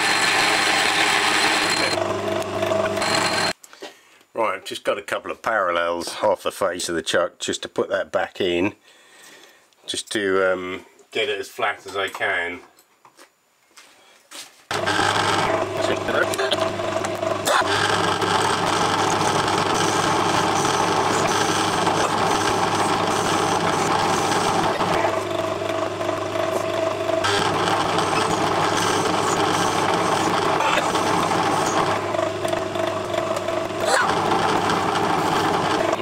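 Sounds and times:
metal lathe motor hum and whine: 0:00.0 - 0:03.5, 0:14.7 - 0:36.0.

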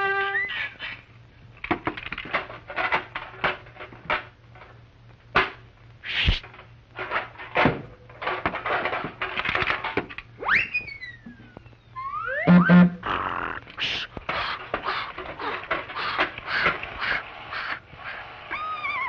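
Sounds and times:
rising whistle-like glide: 0:12.0 - 0:12.7.

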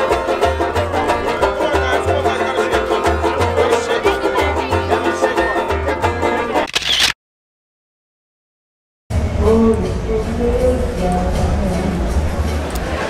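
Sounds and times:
strummed banjo: 0:00.0 - 0:06.7, 0:09.1 - 0:13.0
repeating bass line: 0:09.1 - 0:13.0.

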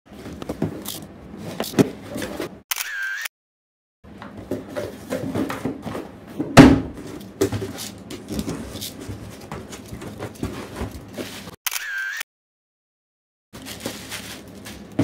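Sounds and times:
cardboard rustling and scraping: 0:04.4 - 0:11.6, 0:13.6 - 0:15.0.

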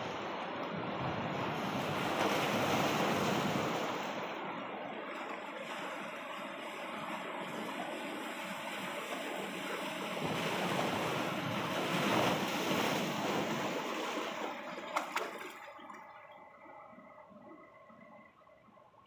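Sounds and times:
sea waves washing against rocks: 0:00.0 - 0:16.5.

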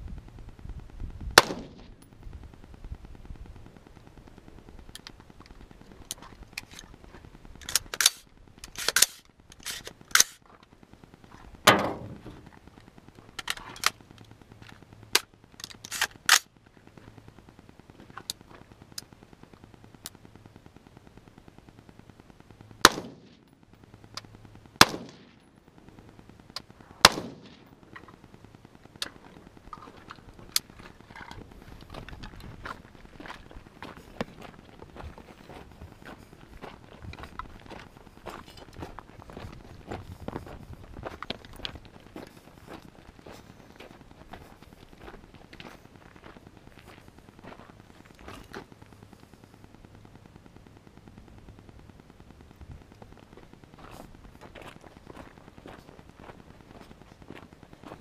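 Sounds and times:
rifle shot: 0:01.3 - 0:02.0, 0:11.6 - 0:12.3, 0:22.8 - 0:23.4, 0:24.8 - 0:25.4, 0:27.0 - 0:27.8
sharp cracks and clicks: 0:03.4 - 0:10.8, 0:11.6 - 0:33.5.

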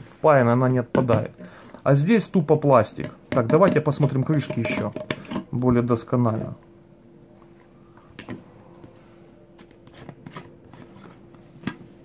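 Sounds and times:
faint steady hum: 0:00.0 - 0:12.0
plastic lid clicks and knocks: 0:03.0 - 0:05.5.

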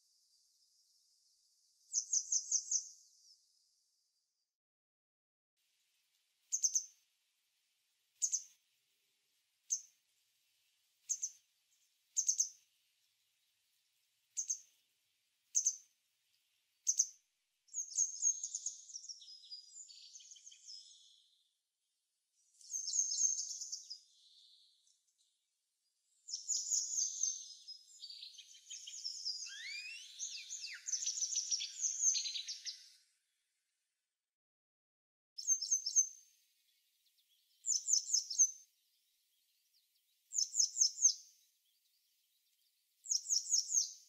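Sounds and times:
birds calling: 0:28.2 - 0:32.9.

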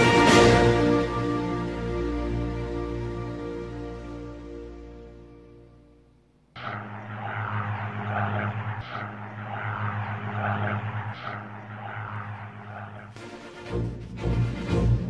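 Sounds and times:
aircraft engines humming: 0:06.2 - 0:15.0
pulsing rushing noise: 0:06.6 - 0:14.0.

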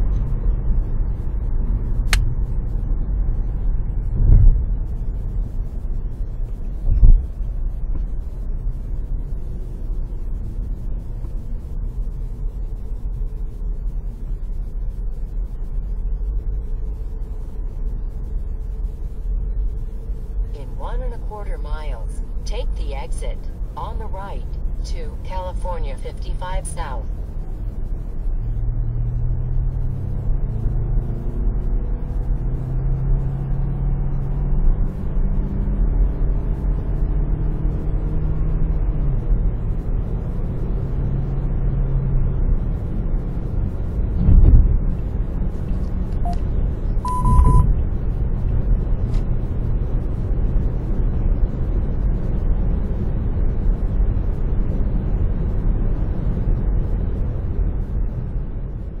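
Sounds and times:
car road and engine drone: 0:00.0 - 0:59.0
short high beep: 0:47.0 - 0:47.7.

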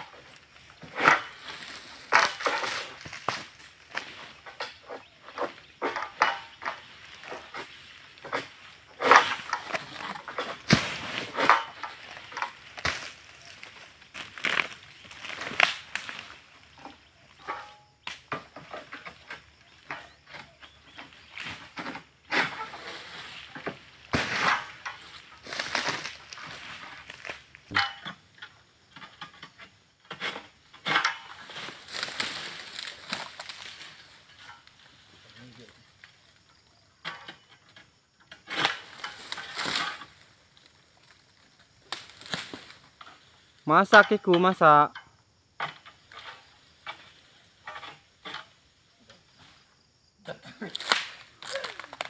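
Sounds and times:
dry palm fronds crunching: 0:00.0 - 0:18.2, 0:20.8 - 0:28.0, 0:30.9 - 0:36.2, 0:38.5 - 0:44.8, 0:50.5 - 0:52.0
sickle blade cracking stalks: 0:00.1 - 0:18.4, 0:22.4 - 0:28.0, 0:30.8 - 0:34.7, 0:38.5 - 0:41.2, 0:41.8 - 0:42.8, 0:50.6 - 0:52.0.

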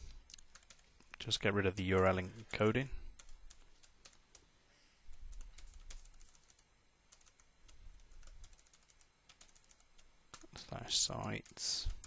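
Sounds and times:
keyboard keys clicking: 0:00.3 - 0:00.8, 0:05.3 - 0:10.6.

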